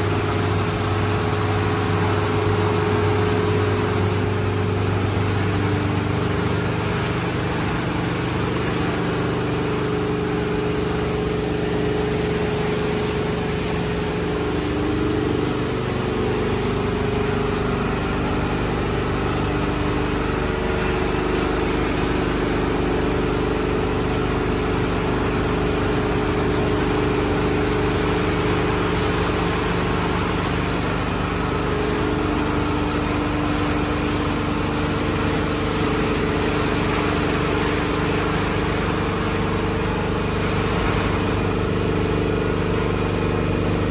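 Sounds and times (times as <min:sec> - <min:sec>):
car wash brushes scrubbing: 0:00.0 - 0:43.9
motors and pumps humming: 0:00.0 - 0:43.9
water spray: 0:00.0 - 0:43.9.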